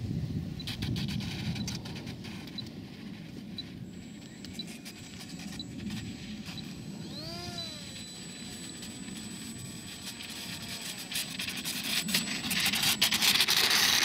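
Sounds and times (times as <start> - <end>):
electric motor whining: 3.6 - 14.0.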